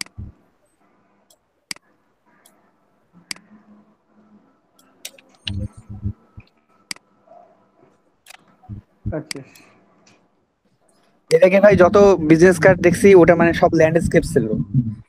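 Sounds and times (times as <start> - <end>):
computer mouse clicking: 4.8 - 7.1.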